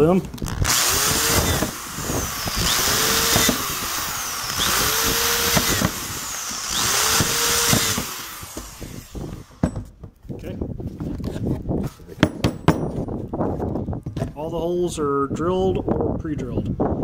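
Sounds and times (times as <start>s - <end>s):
drill press boring through plastic: 0.4s - 9.9s.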